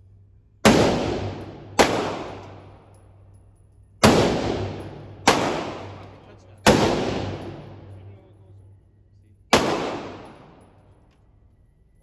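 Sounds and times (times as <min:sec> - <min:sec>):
gunshots with echo: 0:00.6 - 0:02.8, 0:04.0 - 0:08.0, 0:09.5 - 0:10.7.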